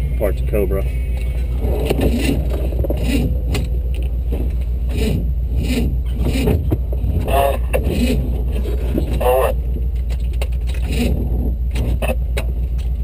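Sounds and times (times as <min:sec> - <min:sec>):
engine running at low revs: 0:00.0 - 0:13.0
tyres and chassis scraping rocks: 0:00.8 - 0:13.0.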